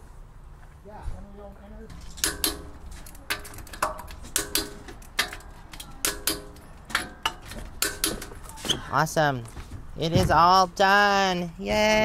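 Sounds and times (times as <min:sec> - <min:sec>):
wrench clicking on lug nuts: 0:01.9 - 0:08.6.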